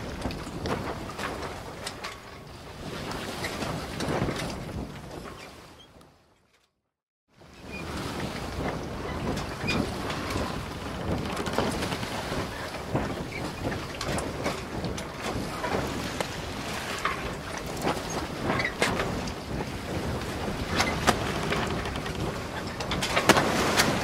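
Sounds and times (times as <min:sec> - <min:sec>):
boat engine rumble: 0:07.4 - 0:24.0
knocks and clatters: 0:10.1 - 0:12.0, 0:20.6 - 0:24.0.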